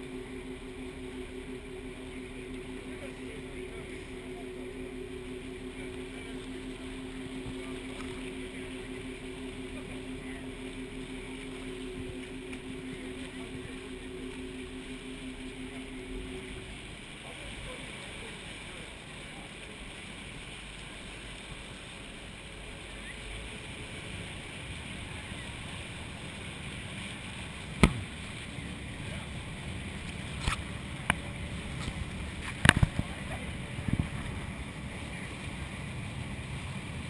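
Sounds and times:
boat engine hum: 0.0 - 37.0
wind and water rushing: 0.0 - 37.0.

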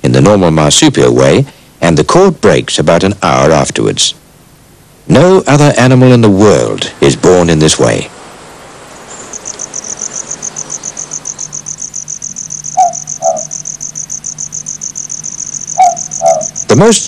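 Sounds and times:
insect chirping: 7.0 - 17.0
two-note animal call: 9.4 - 16.7.

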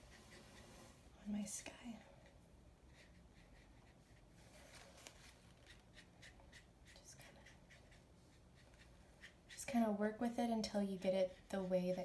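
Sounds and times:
brush swishing on wet paper: 0.0 - 1.1.

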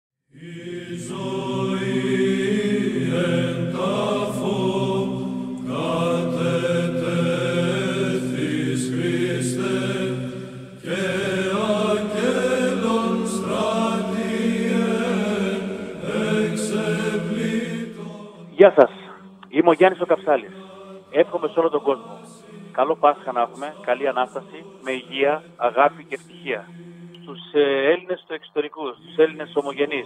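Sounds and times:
voices chanting a hymn: 0.3 - 30.0.

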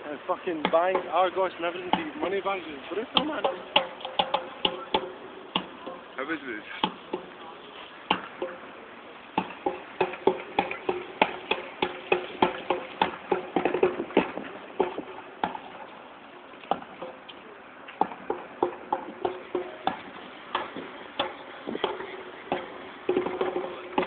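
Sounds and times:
footsteps on hard ground: 9.4 - 24.0.

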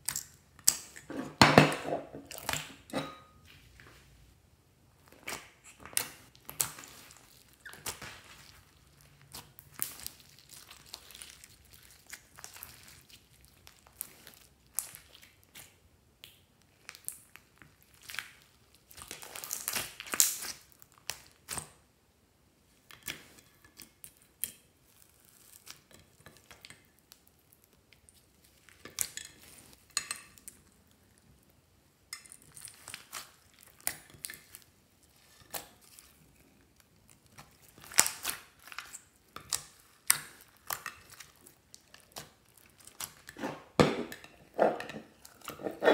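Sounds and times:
slime squishing and crackling: 5.0 - 21.8, 32.2 - 43.8.

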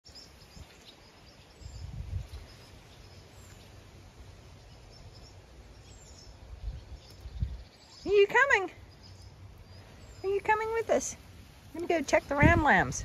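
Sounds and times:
faint high bird chirps: 4.6 - 11.0.

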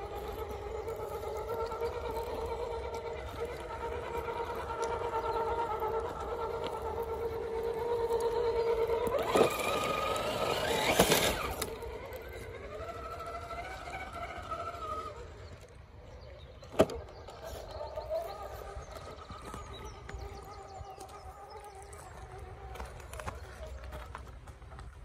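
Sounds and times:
tyres scraping on stone: 0.0 - 14.5
electric motor whining: 0.0 - 24.2.

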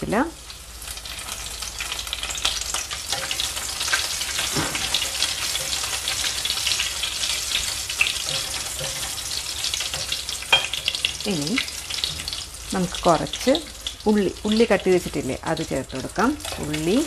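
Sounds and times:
leaves sizzling in hot oil: 0.0 - 17.0.

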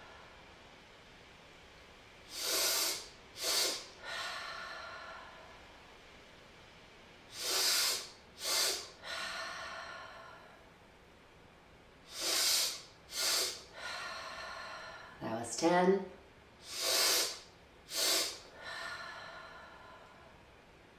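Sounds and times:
sharp nasal inhales: 2.3 - 4.0, 7.3 - 9.0, 12.1 - 13.9, 16.6 - 18.5
soft long exhale: 2.3 - 5.8, 7.3 - 10.7, 12.1 - 15.2, 16.6 - 20.4.

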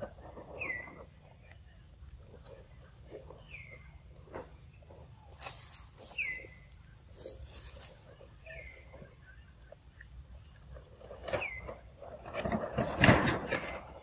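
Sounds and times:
bird high chirp: 3.3 - 9.6, 11.3 - 11.9.

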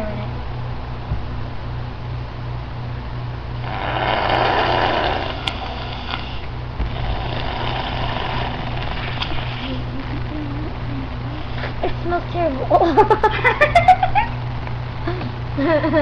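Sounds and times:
steady low hum: 0.0 - 16.0
blowing bubbles through straws: 3.6 - 10.2.

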